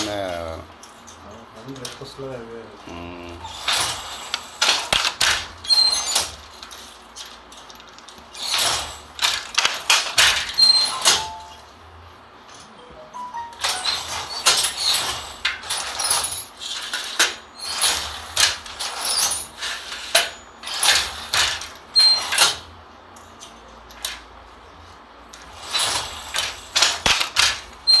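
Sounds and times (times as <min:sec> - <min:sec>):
loom shuttle sliding rasps: 0:03.4 - 0:11.7, 0:13.4 - 0:22.7, 0:25.3 - 0:28.0
loom squeaks: 0:03.4 - 0:11.7, 0:12.7 - 0:22.7, 0:25.4 - 0:28.0
wooden loom clacking: 0:03.5 - 0:11.6, 0:13.6 - 0:22.6, 0:25.4 - 0:28.0.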